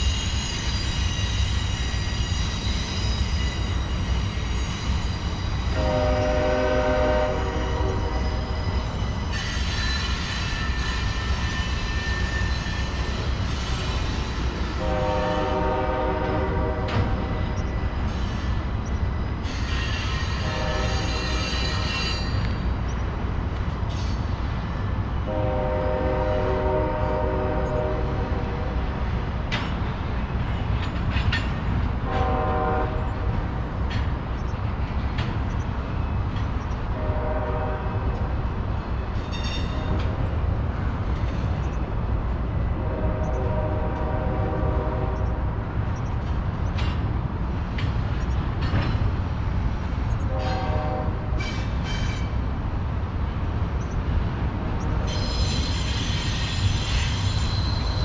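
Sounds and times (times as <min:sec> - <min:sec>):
freight train rumbling past: 0:00.0 - 0:58.0
train cars clanking: 0:00.0 - 0:58.0
locomotive air horn: 0:05.7 - 0:08.6, 0:14.8 - 0:17.4, 0:19.8 - 0:22.3, 0:25.3 - 0:28.8, 0:32.0 - 0:33.2, 0:36.9 - 0:38.2, 0:42.8 - 0:45.4, 0:50.3 - 0:51.4.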